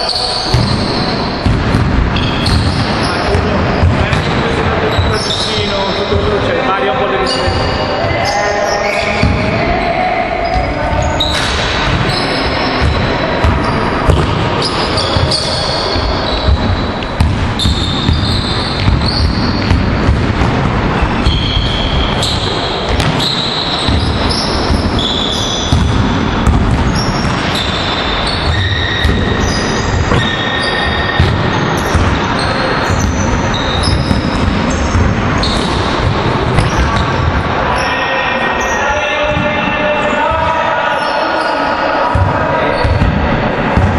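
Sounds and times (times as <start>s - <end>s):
sneaker squeaks: 0.0s - 6.4s, 7.1s - 43.9s
basketballs bouncing on wooden floor: 0.5s - 6.4s, 10.5s - 37.5s, 42.1s - 43.9s.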